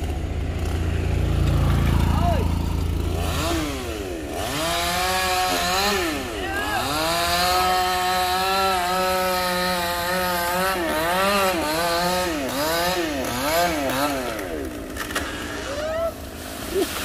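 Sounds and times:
chainsaw cutting wood: 0:00.0 - 0:16.3.

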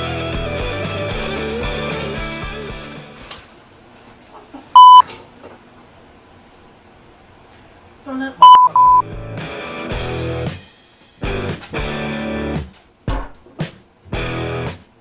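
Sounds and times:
censor bleep tone: 0:04.8 - 0:05.0, 0:08.4 - 0:09.0.

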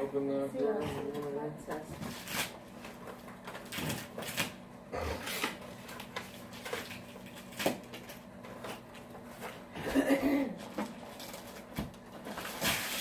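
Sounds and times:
wrapping paper rustling and tearing: 0:02.0 - 0:04.6, 0:05.2 - 0:09.6, 0:10.5 - 0:13.0.

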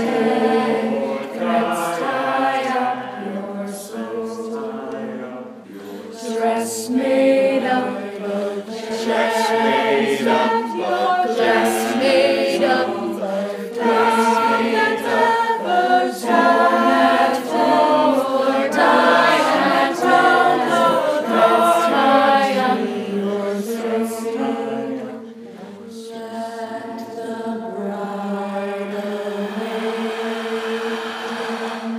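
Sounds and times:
choir singing chant: 0:00.0 - 0:31.9
low held drone: 0:28.7 - 0:31.9.

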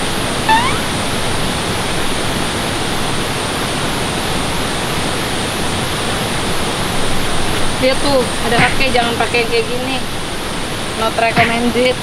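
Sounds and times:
short rising chirp: 0:00.5 - 0:01.0.

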